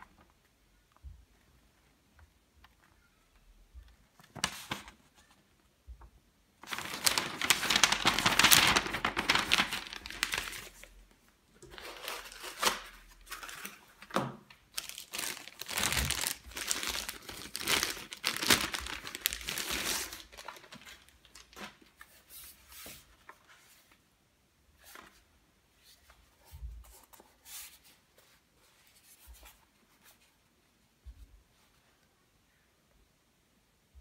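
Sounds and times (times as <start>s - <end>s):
plastic bag crinkling: 6.6s - 11.0s, 11.6s - 21.9s.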